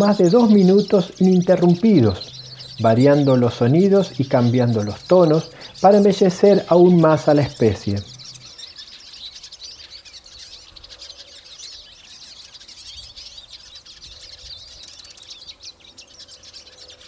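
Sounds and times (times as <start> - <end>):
birds twittering: 0.0 - 17.0.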